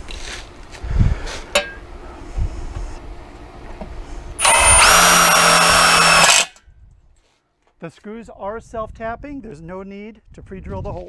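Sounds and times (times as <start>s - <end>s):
cordless drill driving screw: 4.4s - 6.6s.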